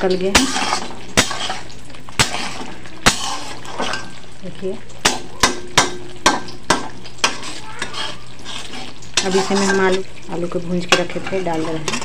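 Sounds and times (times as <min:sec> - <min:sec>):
sizzling in oil: 0:00.0 - 0:12.0.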